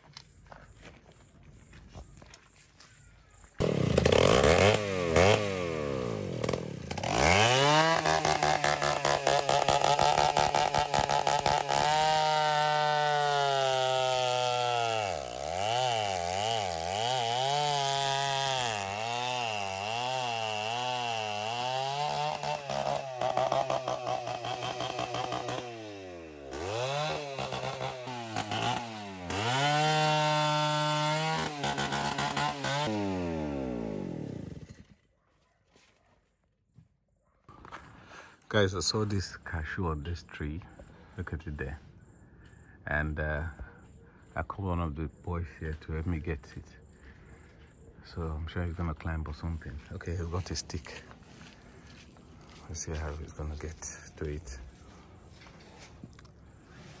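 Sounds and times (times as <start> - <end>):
chainsaw cutting wood: 3.5 - 35.0.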